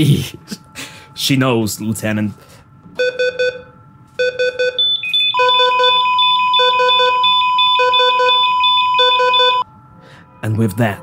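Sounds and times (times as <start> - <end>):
steady flatline tone: 0.9 - 11.0
heart monitor beeps: 3.0 - 9.6.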